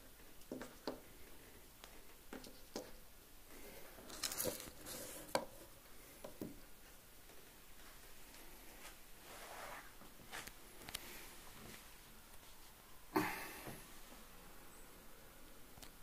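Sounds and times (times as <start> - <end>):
handling clicks and rustles: 4.0 - 5.5.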